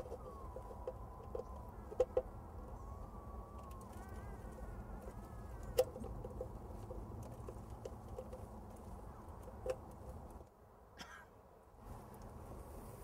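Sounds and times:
faint bird calls: 0.0s - 6.9s
low outdoor rumble: 0.0s - 13.0s.

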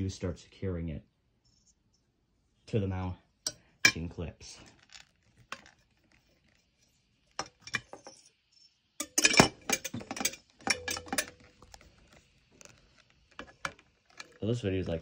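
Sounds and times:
light fixture parts clinking: 9.0s - 11.6s.

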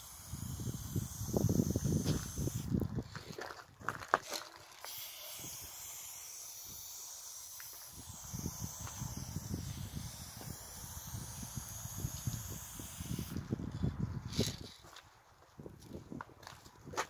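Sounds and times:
spray paint hissing: 0.0s - 2.8s, 4.8s - 13.5s.

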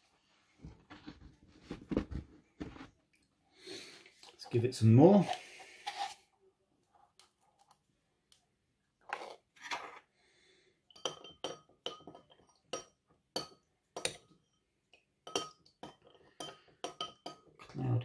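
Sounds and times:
soft scuffs: 0.2s - 3.0s.

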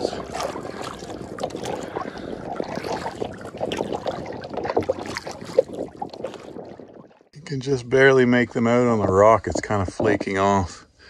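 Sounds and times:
canoe paddle splashing: 0.0s - 7.3s.

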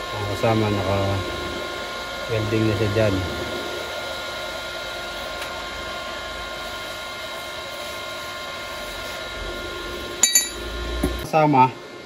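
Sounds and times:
steady mechanical drone: 0.0s - 7.7s
metal burner clanking on concrete: 10.2s - 10.6s.

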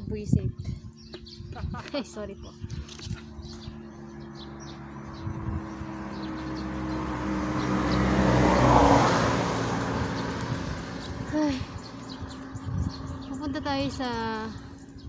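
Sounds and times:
vehicle driving past: 2.9s - 15.0s.

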